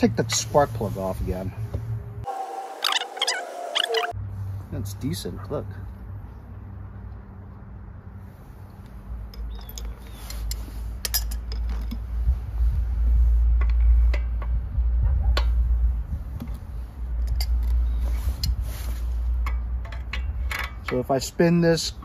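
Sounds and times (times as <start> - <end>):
metal tools and parts clinking: 9.2 - 12.1, 17.2 - 18.6, 19.3 - 22.0.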